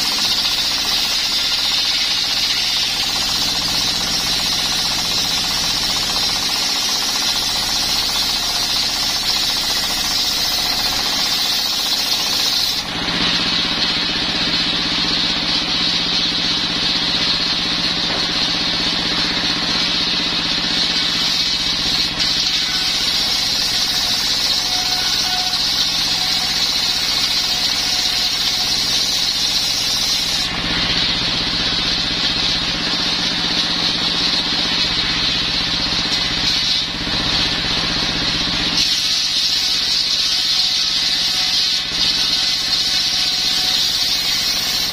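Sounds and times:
circular saw cutting wood: 0.0s - 44.9s
diesel engine running: 12.4s - 24.4s, 30.4s - 38.8s.

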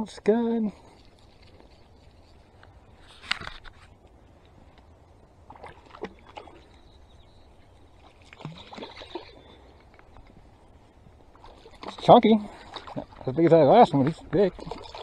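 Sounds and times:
fish splashing in water: 8.0s - 9.7s, 14.5s - 15.0s.

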